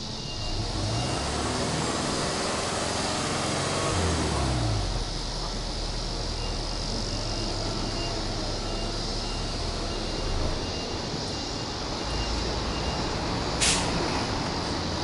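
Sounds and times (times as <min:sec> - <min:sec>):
car engine revving and idling: 0:00.0 - 0:10.5.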